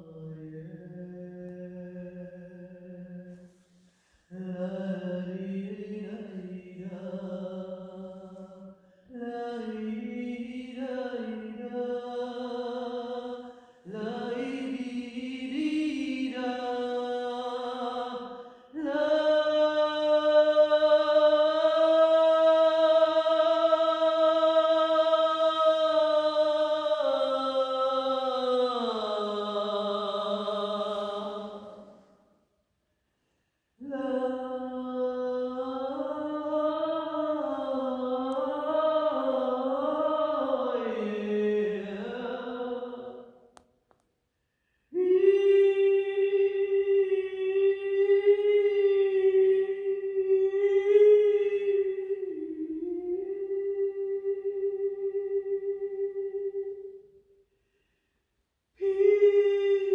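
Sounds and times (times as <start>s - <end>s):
person singing wordless chant: 4.3s - 31.9s, 33.8s - 43.3s, 44.9s - 56.8s, 58.8s - 59.9s.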